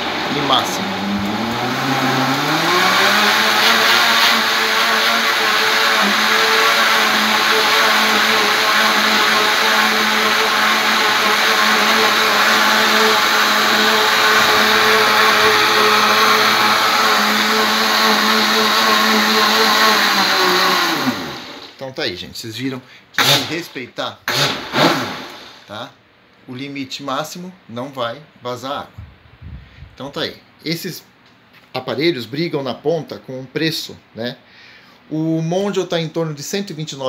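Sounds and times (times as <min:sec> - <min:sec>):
blender motor whine: 0:00.0 - 0:21.8, 0:23.2 - 0:23.5, 0:24.3 - 0:25.7
water churning: 0:05.4 - 0:19.5.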